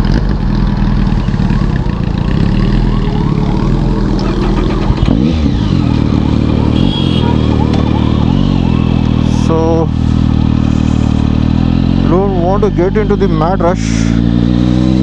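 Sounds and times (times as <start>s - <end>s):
motorcycle engine pulling away: 0.0s - 15.0s.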